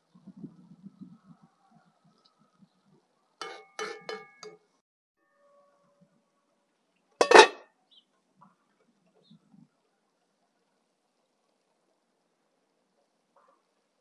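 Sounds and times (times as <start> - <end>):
utensils clinking on cookware: 3.4 - 4.6, 7.2 - 7.6.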